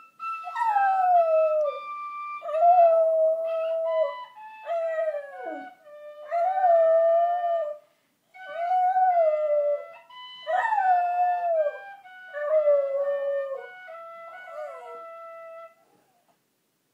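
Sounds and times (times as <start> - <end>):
penny whistle held notes: 0.0 - 2.6
dog howling: 14.4 - 15.2.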